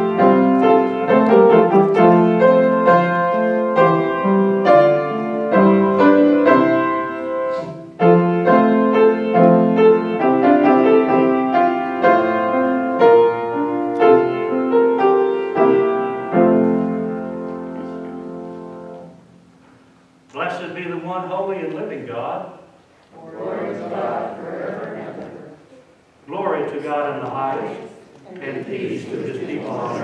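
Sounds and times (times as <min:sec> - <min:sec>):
slow piano chords: 0:00.0 - 0:20.3.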